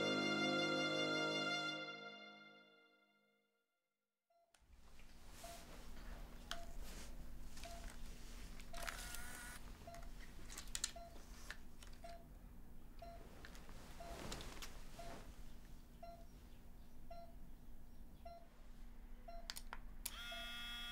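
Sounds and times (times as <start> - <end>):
patient monitor beeping: 5.4 - 5.8, 6.5 - 6.9, 7.6 - 8.0, 8.6 - 10.1, 10.8 - 11.3, 11.9 - 12.4, 13.0 - 15.2, 16.0 - 16.3, 17.1 - 17.4, 18.2 - 18.5, 19.2 - 20.9
camera clicks and ratchet: 8.6 - 11.0, 19.5 - 20.9.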